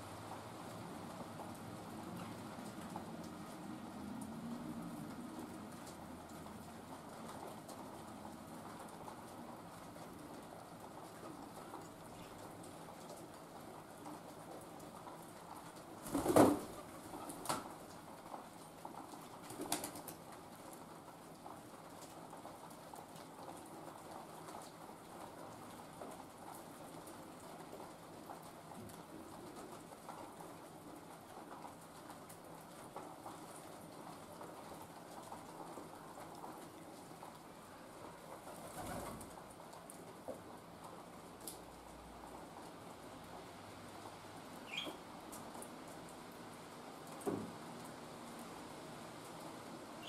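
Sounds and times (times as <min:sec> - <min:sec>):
faint patter of rain: 0:00.0 - 0:50.0
pigeon calls: 0:44.7 - 0:45.0.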